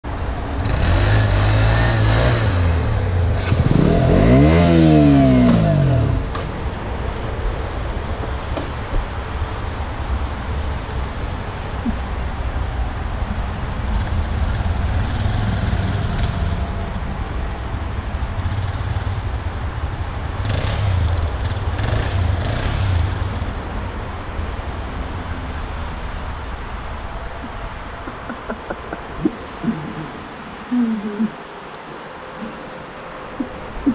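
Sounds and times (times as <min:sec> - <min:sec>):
motorcycle engine revving: 0:00.5 - 0:06.7, 0:13.9 - 0:17.0, 0:20.2 - 0:23.6.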